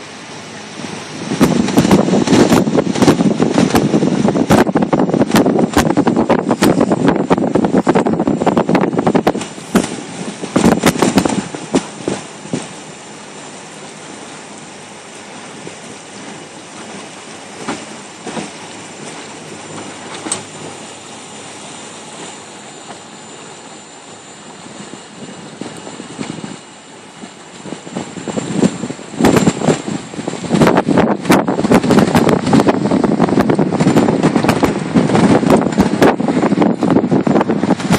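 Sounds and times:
rushing wind and water: 0.0 - 37.9
wind buffeting microphone: 0.6 - 13.4, 24.4 - 37.9.

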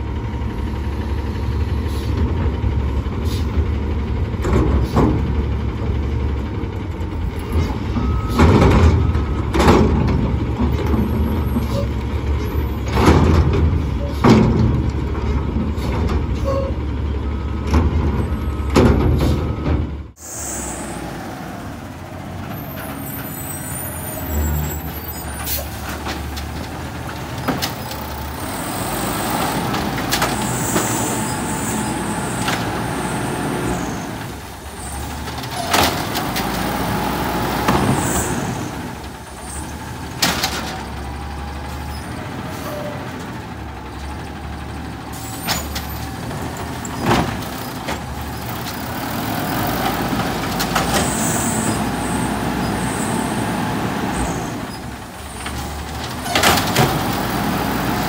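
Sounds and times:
garbage truck engine running: 0.0 - 58.0
air brakes hissing: 1.7 - 2.2, 3.2 - 3.6, 20.2 - 21.1, 23.0 - 25.9, 45.1 - 45.9
cart knocks and bangs: 12.8 - 14.9.

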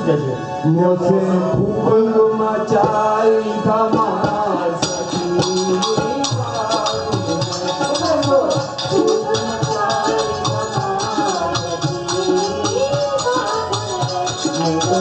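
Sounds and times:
harmonium: 0.0 - 15.0
person singing: 0.6 - 15.0
hand drum: 4.0 - 15.0
jingling small percussion: 4.8 - 15.0.

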